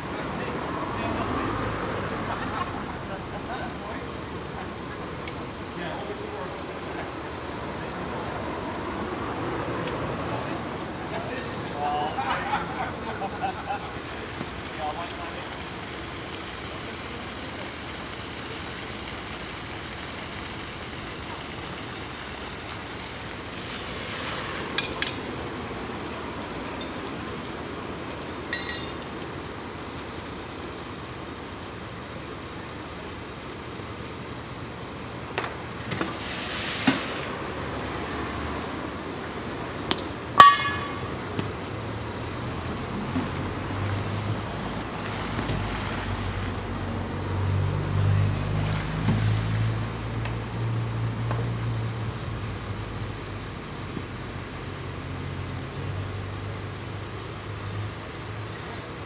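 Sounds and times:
car passing: 0:00.0 - 0:04.1, 0:07.3 - 0:18.5, 0:36.0 - 0:52.5
fire engine engine and pump running: 0:00.0 - 0:59.0
metallic clinks of hose couplings: 0:26.6 - 0:27.1, 0:28.5 - 0:29.0.

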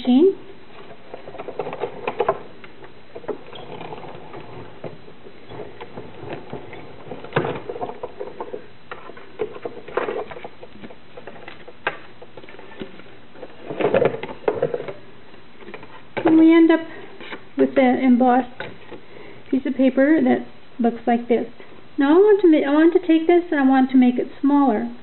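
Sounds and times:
clicks creaks and rubbing: 0:00.7 - 0:15.0.

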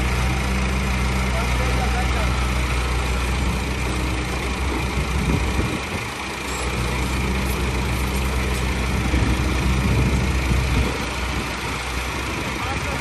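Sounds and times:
diesel engines running: 0:00.0 - 0:13.0.

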